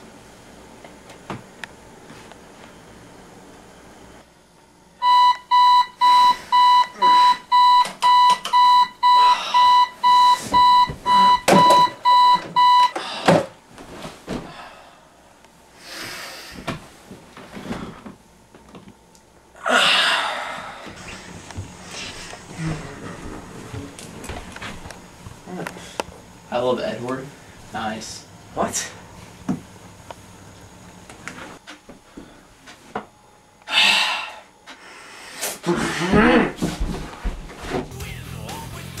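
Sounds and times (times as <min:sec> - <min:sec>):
digital alarm clock beeping: 0:05.0 - 0:12.9.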